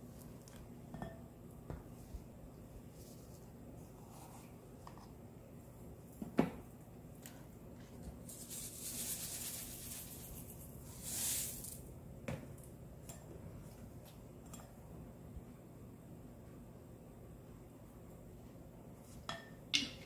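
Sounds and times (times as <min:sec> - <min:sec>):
seeds sprinkling rustles: 0:08.2 - 0:11.9.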